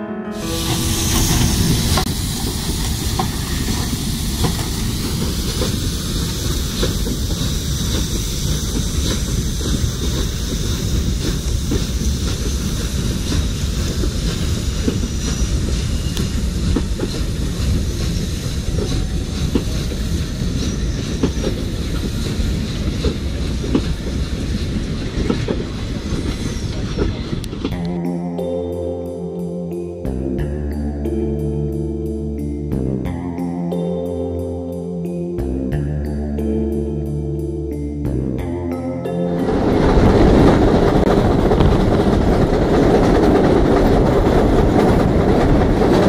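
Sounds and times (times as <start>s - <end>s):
train rumbling past: 0.0s - 31.2s, 37.0s - 46.0s
wheels clicking over rail joints: 1.1s - 27.9s.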